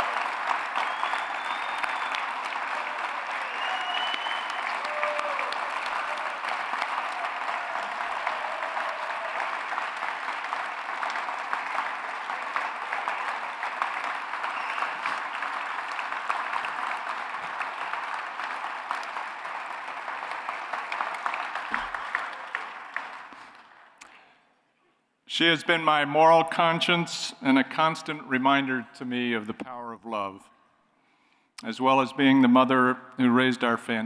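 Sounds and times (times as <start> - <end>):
audience applauding: 0.0 - 24.0.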